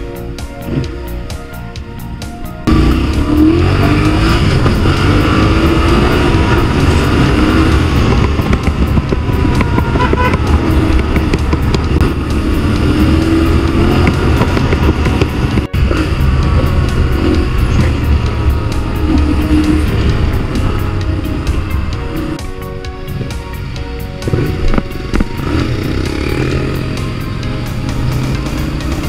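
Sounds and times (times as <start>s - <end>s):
motorcycle engine revving: 2.6s - 29.0s
wind rushing on microphone: 4.0s - 22.4s.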